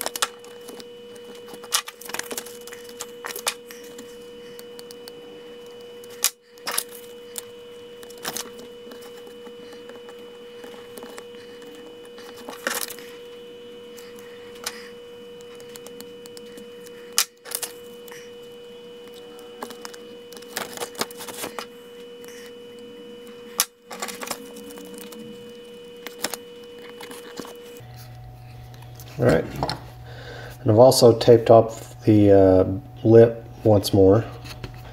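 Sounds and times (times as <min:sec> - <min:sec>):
faint steady whine: 0:00.0 - 0:34.9.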